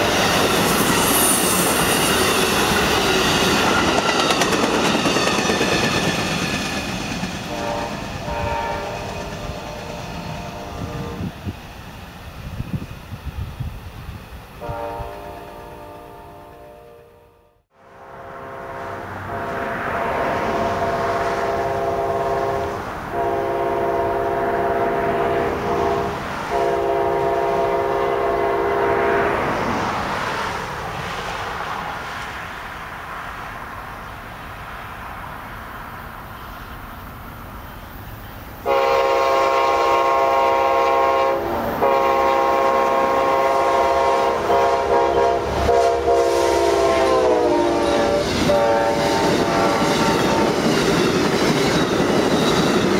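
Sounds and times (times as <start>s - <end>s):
train engine and wheels rumbling: 0.0s - 52.9s
train horn blasts: 7.4s - 11.3s, 14.6s - 29.6s, 38.6s - 50.7s.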